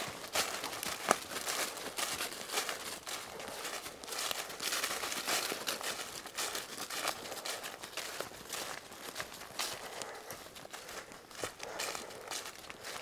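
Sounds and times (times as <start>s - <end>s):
footsteps crunching dry leaves: 0.0s - 13.0s.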